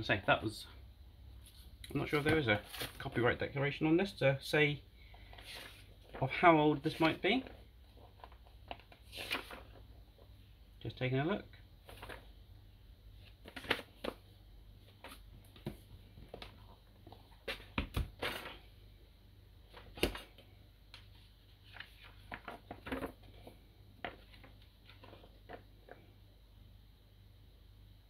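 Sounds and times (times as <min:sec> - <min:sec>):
paper rustling: 0:01.4 - 0:03.2, 0:05.2 - 0:09.9, 0:11.8 - 0:12.3, 0:21.5 - 0:25.6.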